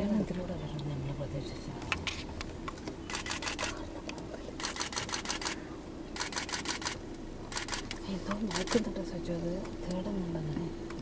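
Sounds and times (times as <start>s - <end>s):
camera shutter rapid clicks: 3.1s - 3.8s, 4.6s - 5.6s, 6.2s - 8.8s.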